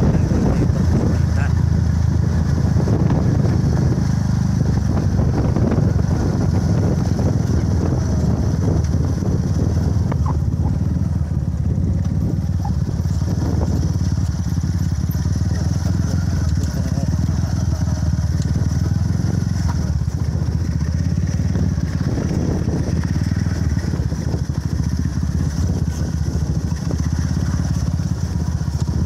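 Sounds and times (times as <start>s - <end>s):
motorcycle engine cruising: 0.0s - 29.0s
road and wind noise: 0.0s - 29.0s.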